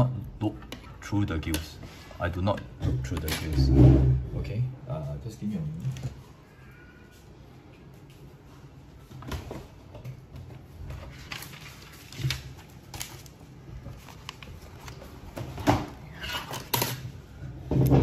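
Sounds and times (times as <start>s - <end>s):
paper rustling: 10.4s - 17.0s.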